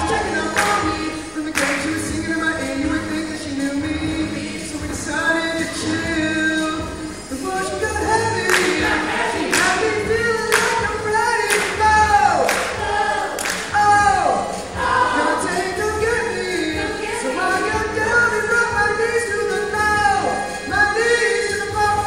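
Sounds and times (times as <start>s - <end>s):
choir singing: 0.0s - 3.1s, 6.8s - 19.3s
sharp beats: 0.0s - 22.0s.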